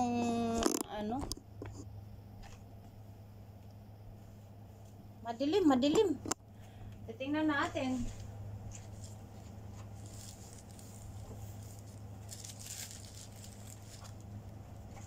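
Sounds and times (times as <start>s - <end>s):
steady low hum: 0.0s - 15.0s
soft footsteps: 7.6s - 12.1s
fabric curtains rustling: 7.8s - 14.2s.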